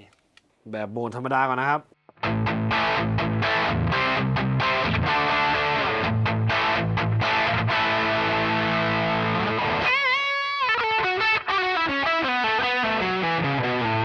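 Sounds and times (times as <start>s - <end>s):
distorted electric guitar: 2.1s - 14.0s.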